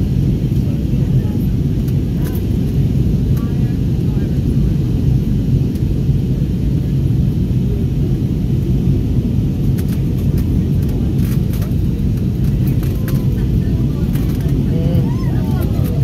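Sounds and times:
airplane cabin rumble: 0.0s - 16.0s.

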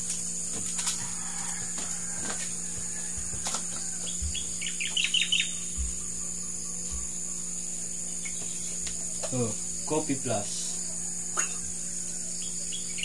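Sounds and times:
high-pitched insect drone: 0.0s - 13.0s
bird chirping: 4.0s - 13.0s.

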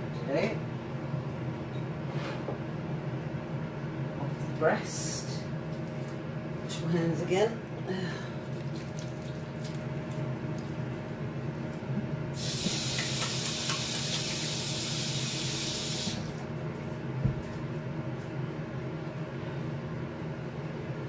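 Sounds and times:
air fryer oven humming: 0.0s - 21.0s
kitchen tap running: 12.4s - 16.4s.

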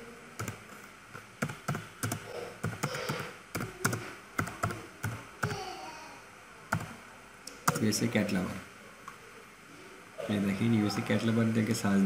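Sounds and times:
keyboard keystrokes clicking: 1.4s - 5.6s, 6.7s - 7.9s.

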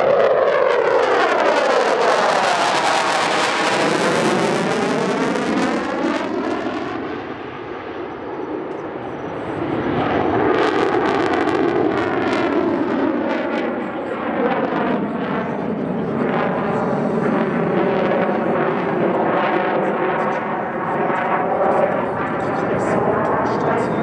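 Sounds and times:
jet engine roar overhead: 0.0s - 24.0s.

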